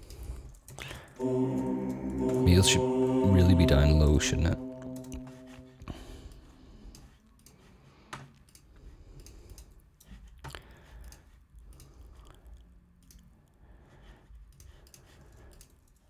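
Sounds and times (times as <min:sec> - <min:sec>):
low hum: 0:01.2 - 0:06.6.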